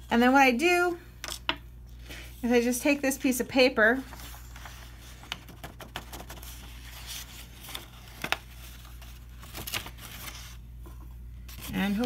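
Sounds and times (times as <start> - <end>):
paper rustling and crinkling: 3.9 - 12.0.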